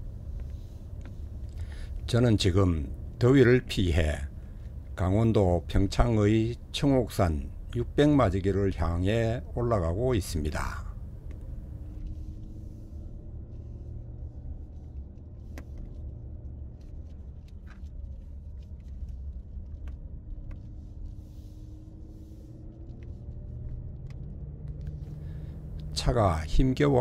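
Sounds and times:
road rumble: 0.0 - 27.0.

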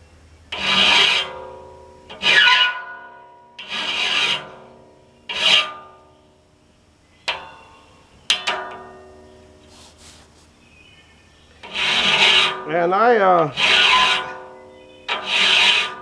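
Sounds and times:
file rasping on saw blade: 0.6 - 1.3, 2.2 - 2.8, 3.6 - 4.6, 5.3 - 5.8, 11.6 - 12.7, 13.5 - 14.4, 15.1 - 16.0.

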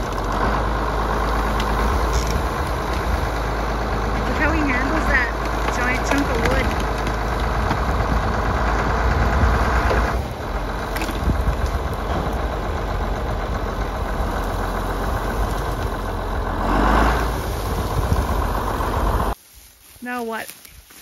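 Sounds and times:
tractor engine rumbling: 0.0 - 21.0.

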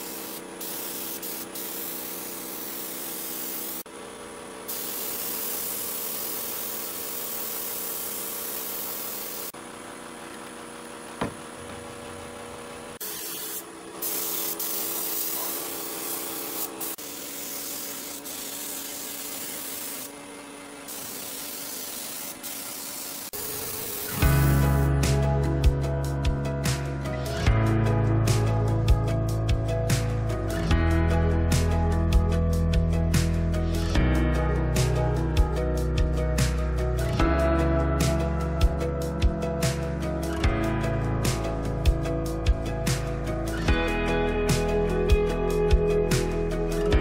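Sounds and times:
spray gun hissing: 0.0 - 3.9, 4.7 - 9.6, 13.0 - 20.2, 20.8 - 25.0
music: 24.1 - 47.0.

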